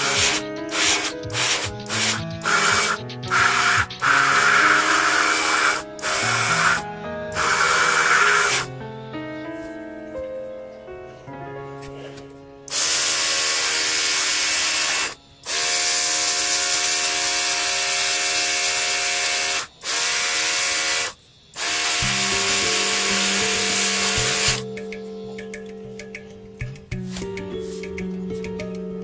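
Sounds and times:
airbrush spraying hiss: 0.0 - 8.7, 21.0 - 24.6
background music: 0.0 - 17.4, 21.7 - 29.0.

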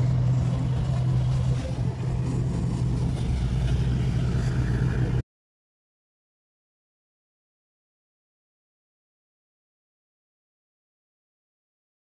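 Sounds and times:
low engine drone: 0.0 - 5.2.

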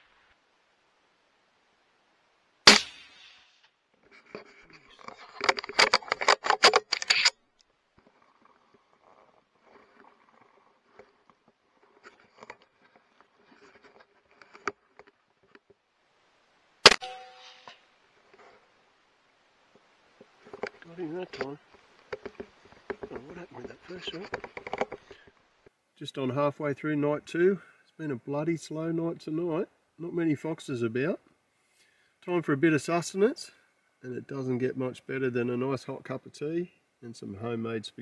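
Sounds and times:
suppressed rifle shots: 2.6 - 3.7
dense clicking and rattling: 5.0 - 7.3.

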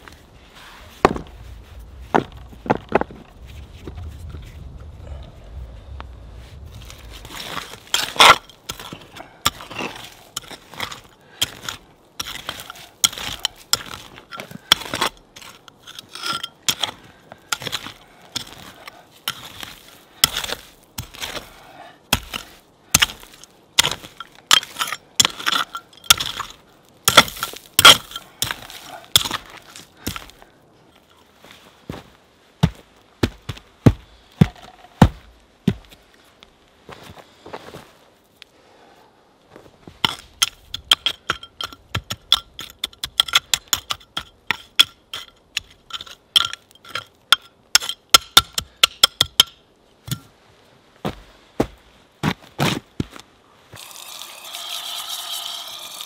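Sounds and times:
hand tool scraping soil: 6.5 - 31.7, 39.9 - 49.1, 53.7 - 56.0
stones clinking together: 7.4 - 21.5, 22.2 - 30.4, 40.0 - 50.3.

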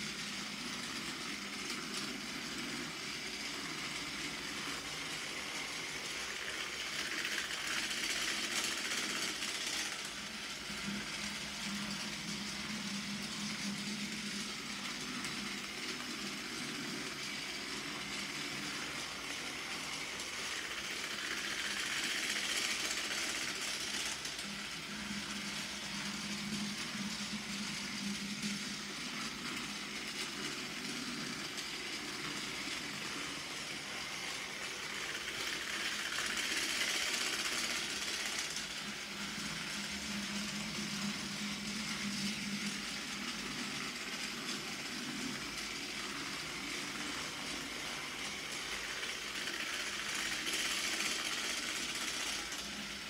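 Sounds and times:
toy train motor whirring: 0.0 - 53.0.

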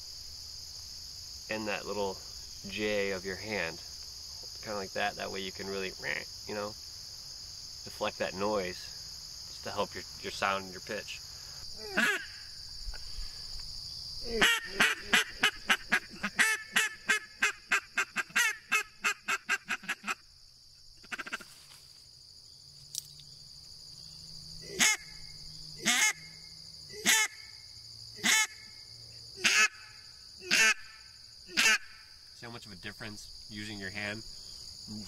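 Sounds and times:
insects buzzing: 0.0 - 35.0
duck call quacks: 12.0 - 12.4, 14.4 - 20.2, 21.0 - 21.5, 24.7 - 25.2, 25.8 - 26.2, 27.0 - 27.4, 28.2 - 28.6, 29.4 - 32.1.

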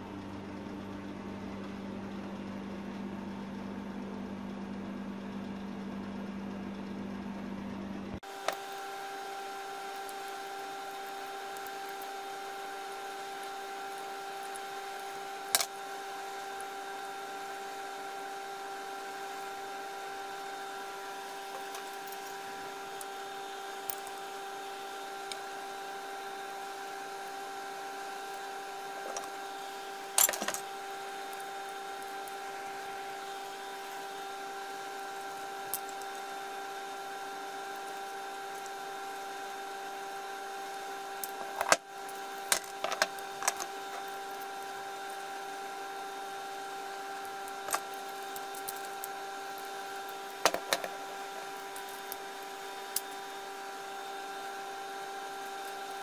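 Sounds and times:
steady hum: 0.0 - 56.0.

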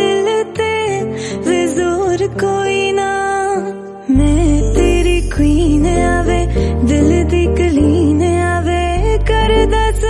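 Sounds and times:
pop song phone ringtone: 4.1 - 8.1.

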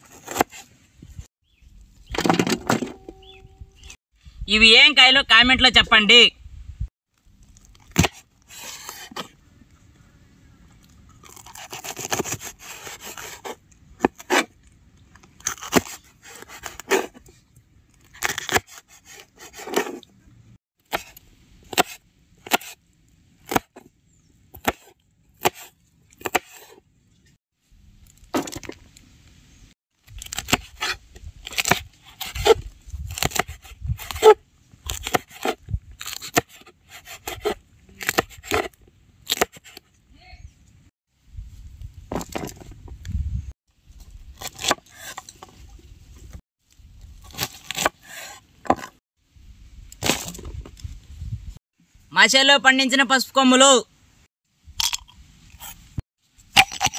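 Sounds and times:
knife scraping crunching cuts: 0.0 - 0.7, 7.4 - 9.3, 11.1 - 14.6, 15.3 - 17.4, 18.0 - 20.1, 20.9 - 22.8, 23.4 - 23.9, 24.6 - 26.8, 30.1 - 39.9, 44.3 - 45.6, 47.2 - 49.0, 56.5 - 56.9
knife chopping on wooden board: 24.6 - 26.7.

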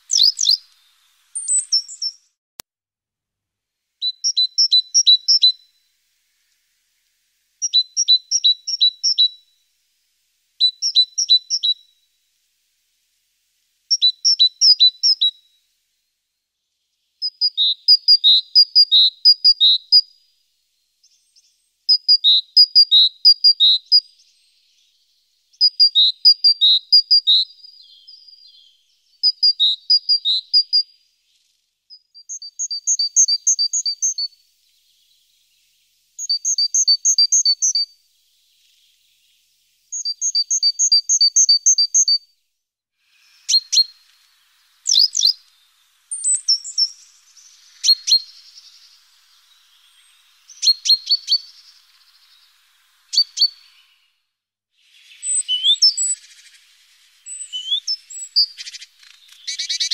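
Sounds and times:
songbird whistling: 0.0 - 2.3, 4.0 - 5.9, 7.6 - 9.6, 10.6 - 12.1, 13.9 - 15.6, 17.2 - 20.2, 21.0 - 31.0, 31.9 - 35.3, 36.2 - 38.0, 39.9 - 42.3, 43.1 - 54.3, 54.9 - 59.9.

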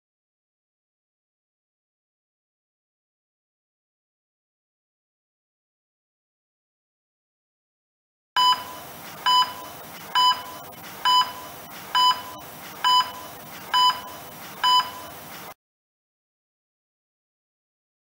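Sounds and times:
short electronic beeps: 8.4 - 15.2.

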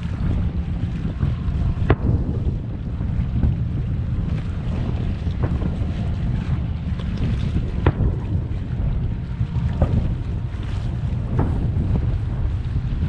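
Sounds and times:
wind on microphone: 0.0 - 13.0.

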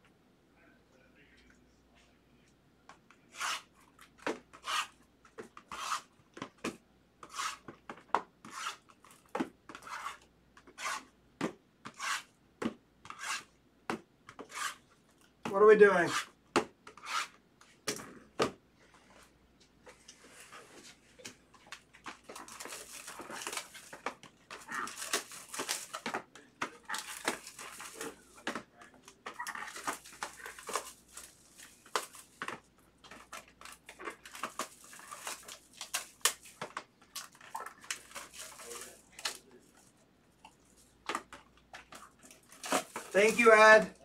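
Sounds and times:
plastic wrap crinkling: 21.7 - 40.0, 40.6 - 43.9.

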